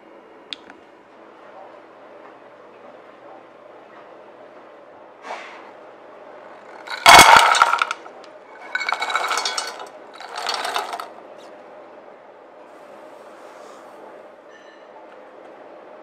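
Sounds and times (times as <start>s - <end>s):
blueberries rattling into metal bowl: 6.6s - 11.1s.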